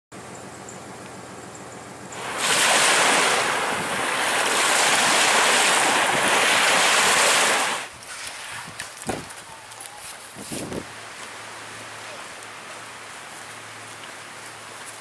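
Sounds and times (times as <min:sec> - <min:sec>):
small waves washing on beach: 0:02.1 - 0:10.3.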